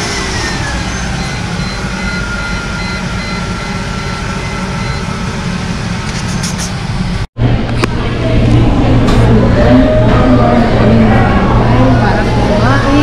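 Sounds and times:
car engine idling: 0:00.0 - 0:07.8
faint high beeps: 0:00.5 - 0:05.2.

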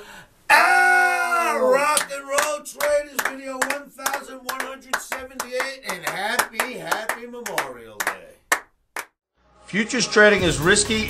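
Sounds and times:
man's sung shout: 0:00.5 - 0:06.8
rapid hand clapping: 0:01.9 - 0:09.2.

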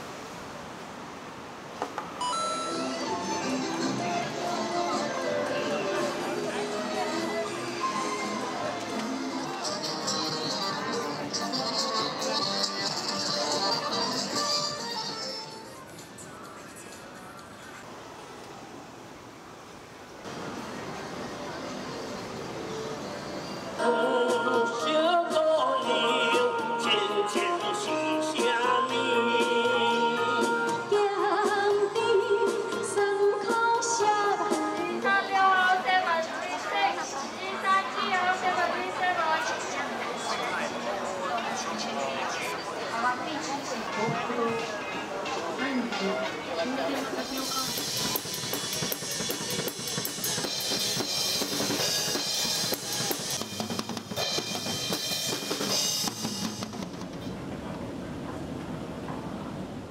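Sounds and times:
recorded backing music: 0:02.2 - 0:17.8, 0:23.6 - 0:38.8, 0:43.8 - 0:57.0
person singing into microphone: 0:23.8 - 0:36.9
drum kit beat: 0:47.2 - 0:57.2.

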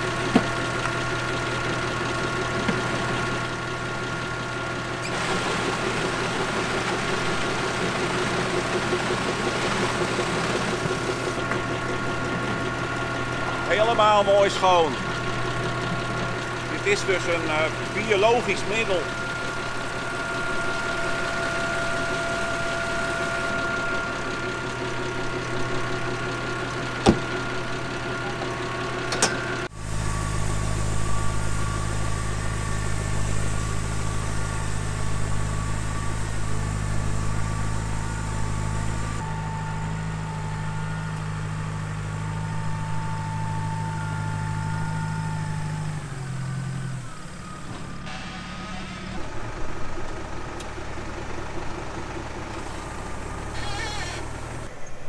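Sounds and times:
tractor engine idling: 0:00.0 - 0:55.0
tractor engine pulling: 0:00.0 - 0:55.0.

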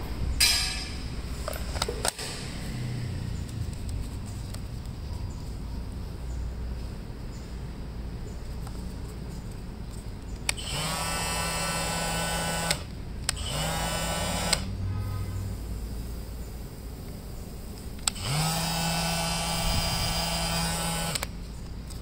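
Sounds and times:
multi-tool buzzing whine: 0:10.4 - 0:15.4, 0:18.0 - 0:22.0.

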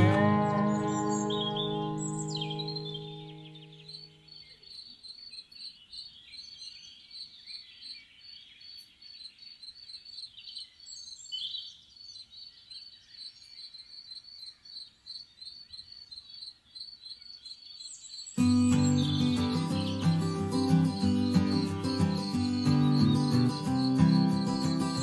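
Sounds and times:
birds singing: 0:00.0 - 0:25.0
crickets chirping: 0:18.4 - 0:25.0.

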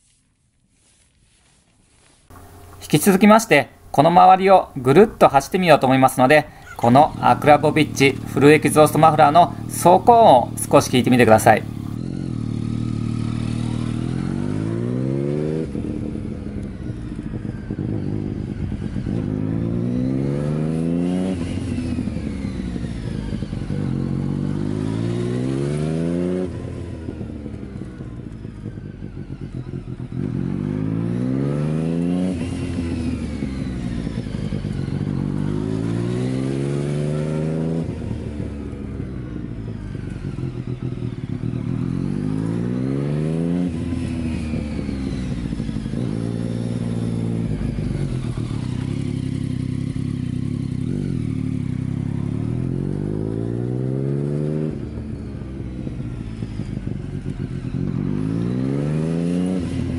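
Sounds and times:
motorcycle engine passing by: 0:04.8 - 0:59.9.

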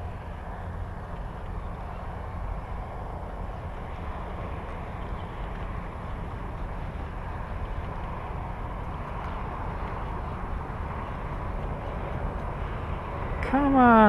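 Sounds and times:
highway traffic: 0:00.0 - 0:14.0.

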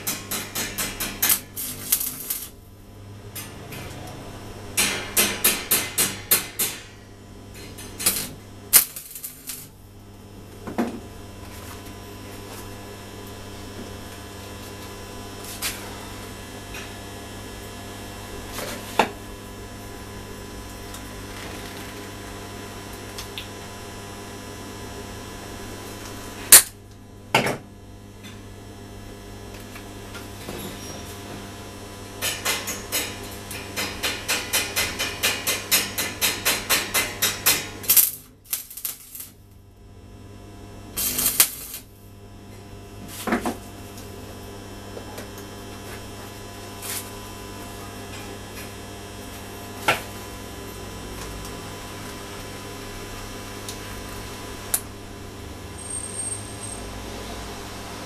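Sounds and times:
welding arc crackle: 0:00.0 - 0:27.2, 0:27.9 - 0:58.0
welder humming: 0:00.0 - 0:58.0.

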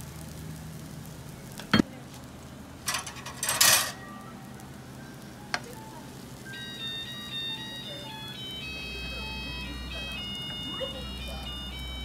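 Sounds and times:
metal utensils rattling: 0:02.8 - 0:04.0.

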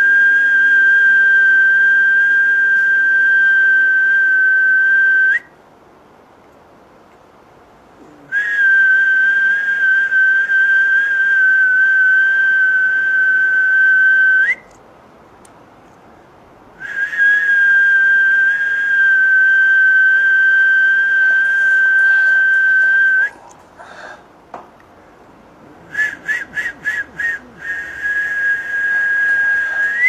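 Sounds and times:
high steady whistling: 0:00.0 - 0:05.6, 0:08.3 - 0:14.8, 0:16.8 - 0:23.5, 0:25.9 - 0:30.0.

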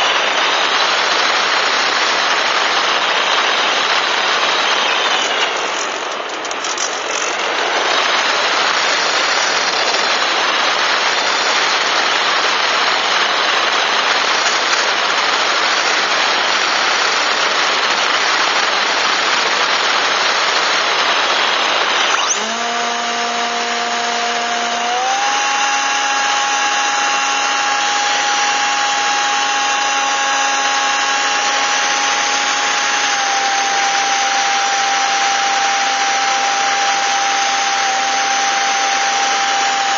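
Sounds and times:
model plane motor and propeller whine: 0:00.0 - 0:39.9.

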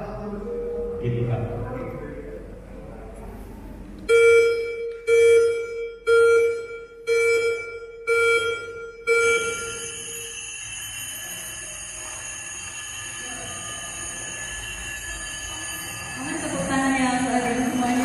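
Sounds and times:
countdown timer beeps: 0:04.1 - 0:18.0.

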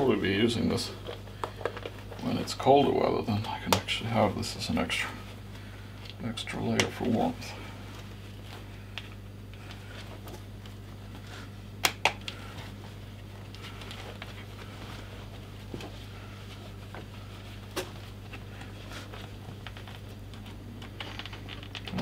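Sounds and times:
steady low hum: 0:00.0 - 0:22.0
leather rustling: 0:12.3 - 0:21.6.

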